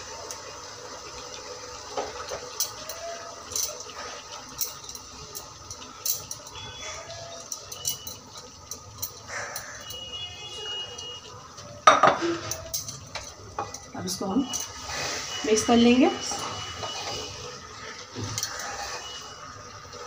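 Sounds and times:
spatula scraping metal pot: 0:16.1 - 0:19.4.

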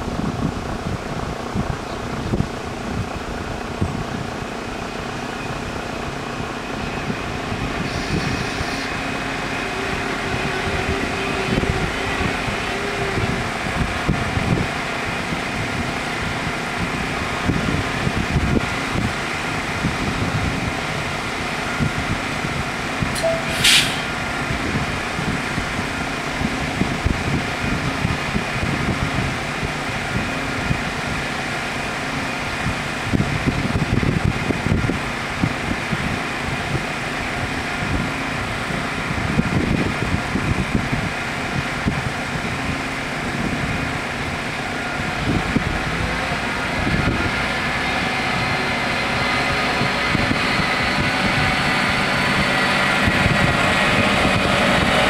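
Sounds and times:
train running low: 0:00.0 - 0:55.0
level crossing bells ringing: 0:23.2 - 0:23.7
short hiss: 0:23.2 - 0:24.2.

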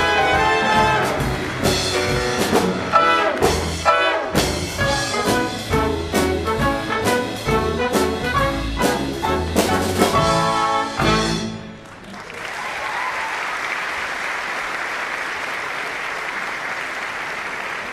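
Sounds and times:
audience applauding: 0:00.0 - 0:03.8, 0:11.8 - 0:17.9
orchestra with brass playing: 0:00.0 - 0:11.9.

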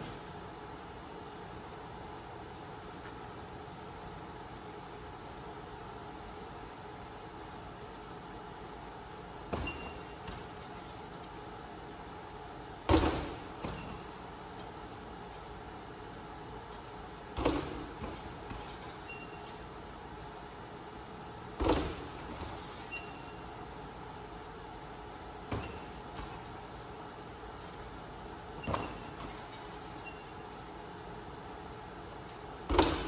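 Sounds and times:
ball knocking against hoop game: 0:12.9 - 0:14.1, 0:17.3 - 0:18.9, 0:21.6 - 0:22.7, 0:32.6 - 0:33.0.

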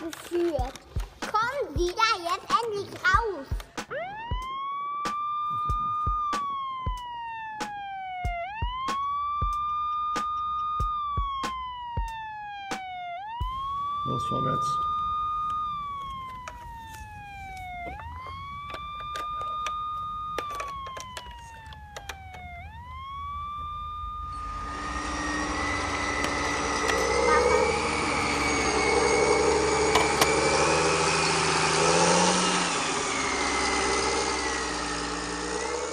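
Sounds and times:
electronic police siren wailing: 0:03.8 - 0:35.9
vehicle engine running: 0:13.5 - 0:35.9.

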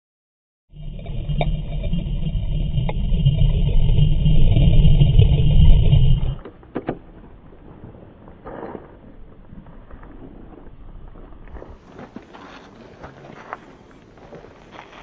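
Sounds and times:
underwater churning rumble: 0:00.7 - 0:06.4.

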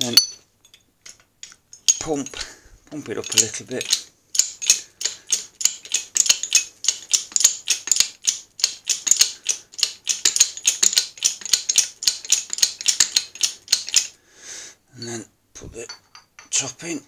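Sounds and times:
hydraulic jack clicking and rattling: 0:01.1 - 0:14.2.

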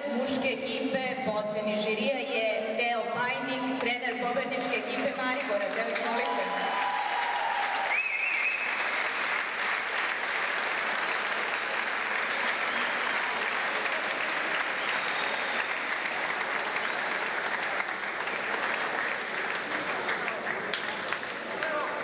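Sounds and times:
audience applauding: 0:05.6 - 0:22.0.

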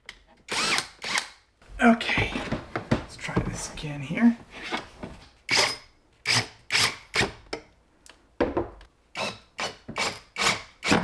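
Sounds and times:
drill driving screws: 0:00.5 - 0:01.4.

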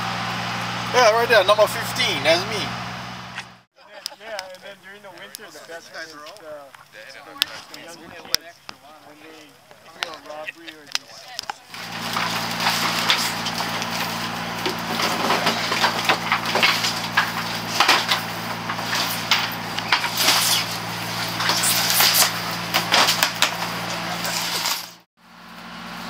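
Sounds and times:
low machine hum: 0:11.7 - 0:26.0.

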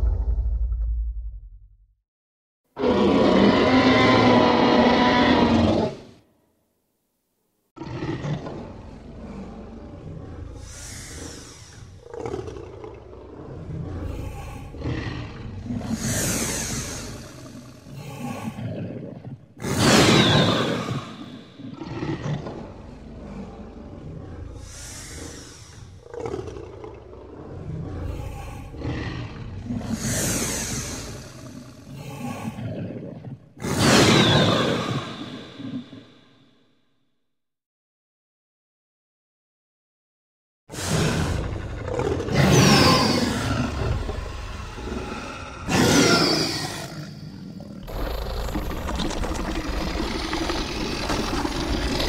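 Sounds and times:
dinosaur roar growls: 0:02.8 - 0:06.2, 0:07.8 - 0:36.4, 0:40.7 - 0:52.0
breathy hisses: 0:10.6 - 0:12.0, 0:15.9 - 0:18.7, 0:24.6 - 0:26.0, 0:28.0 - 0:28.9, 0:29.8 - 0:32.6.

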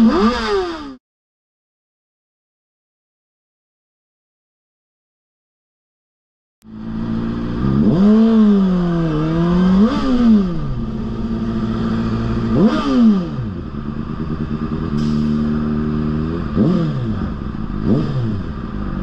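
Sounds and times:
motorcycle engine revving: 0:00.0 - 0:01.0, 0:06.6 - 0:19.0.

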